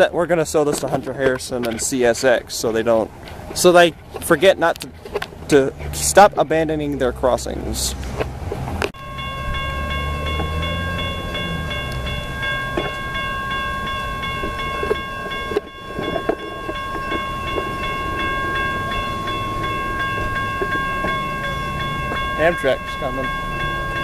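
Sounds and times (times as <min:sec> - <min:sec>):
railroad crossing bell ringing: 0:09.0 - 0:24.0.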